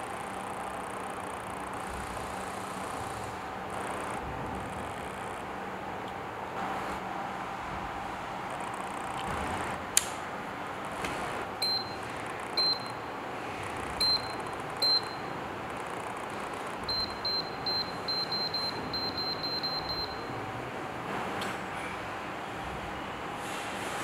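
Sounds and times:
steady fan hiss: 0:00.0 - 0:24.0
control panel beeping: 0:11.6 - 0:13.2, 0:14.0 - 0:15.4, 0:16.8 - 0:20.4.

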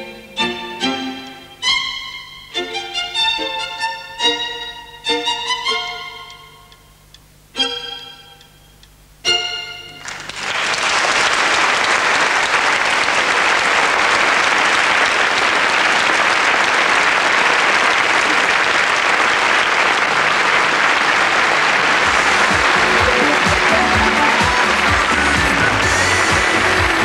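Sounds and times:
music: 0:00.0 - 0:10.1, 0:20.1 - 0:27.0
large audience applauding: 0:10.0 - 0:27.0.

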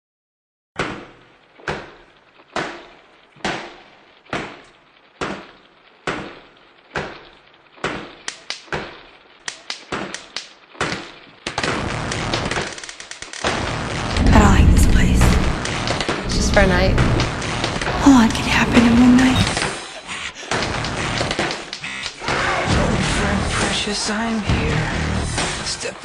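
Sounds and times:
dense noisy wash: 0:14.0 - 0:19.6.

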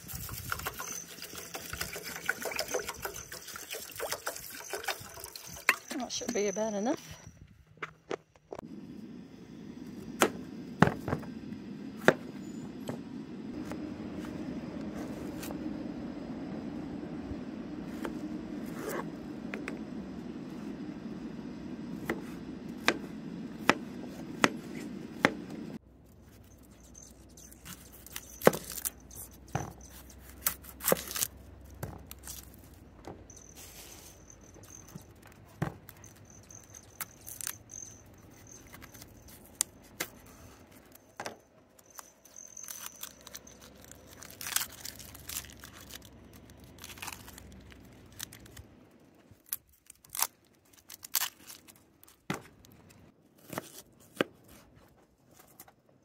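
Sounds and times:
onion skin crinkling and tearing: 0:41.8 - 0:52.8.

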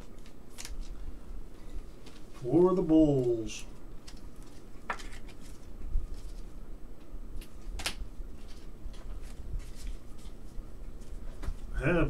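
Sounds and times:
cards clicking and tapping: 0:04.0 - 0:05.6, 0:07.4 - 0:10.4.

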